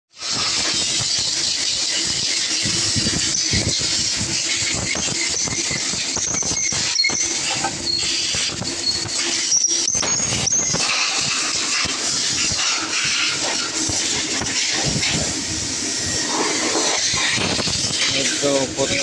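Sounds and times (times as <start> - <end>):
workshop hiss and hum: 0.1 - 19.0
brief high squeaks: 4.5 - 11.6.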